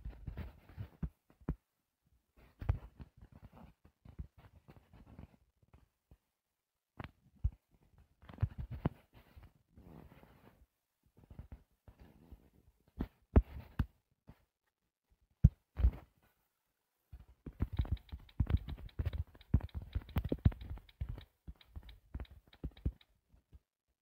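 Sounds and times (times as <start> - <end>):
fingertips tapping touchscreen: 17.4 - 23.2.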